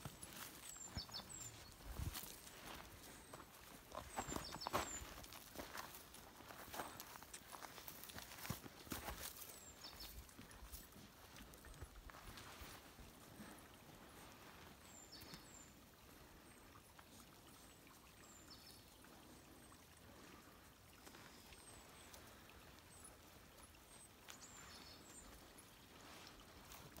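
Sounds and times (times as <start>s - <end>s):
stream trickling: 0.0s - 27.0s.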